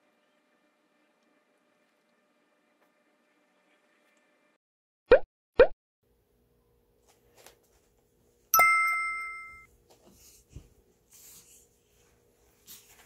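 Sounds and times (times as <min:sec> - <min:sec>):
bright chime ding: 0:08.6 - 0:09.7.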